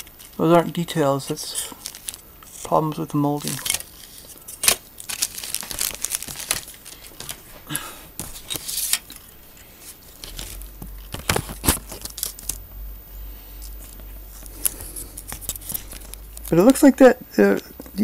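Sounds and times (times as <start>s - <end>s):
plastic clicking and rustling: 10.2s - 12.6s, 14.5s - 16.6s.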